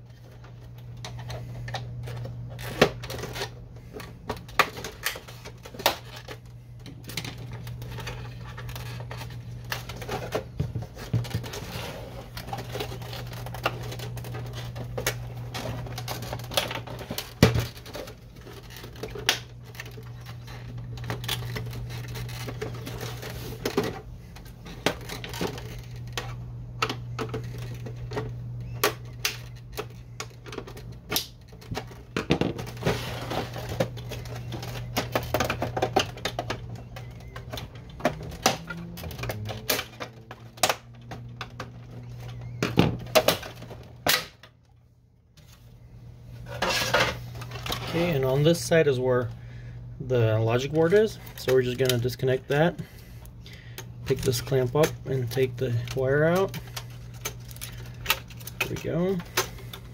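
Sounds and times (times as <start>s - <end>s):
steady low hum: 0.0s - 59.9s
printer being shifted: 26.8s - 44.3s.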